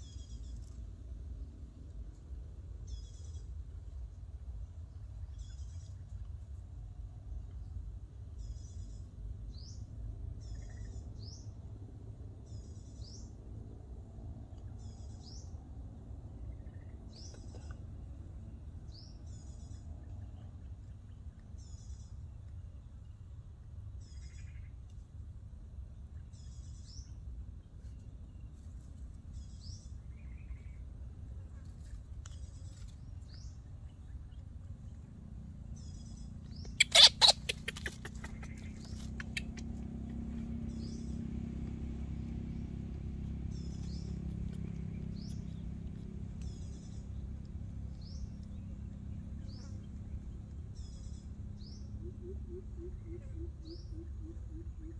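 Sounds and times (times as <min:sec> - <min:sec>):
outdoor background: 0:00.0 - 0:54.9
bird calling: 0:35.8 - 0:41.2, 0:50.8 - 0:54.9.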